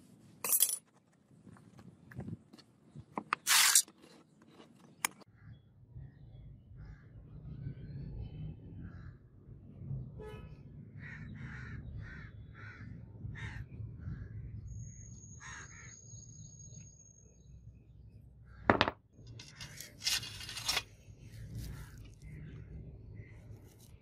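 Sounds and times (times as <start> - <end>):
crows cawing: 11.0 - 13.6, 15.4 - 16.0
metal rattling and scraping: 19.3 - 20.9.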